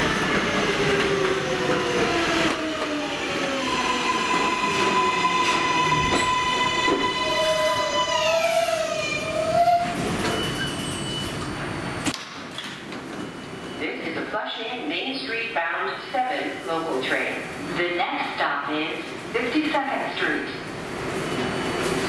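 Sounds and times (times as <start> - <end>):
subway train motor whine: 0.0 - 12.2
wavering brake squeal: 5.0 - 12.0.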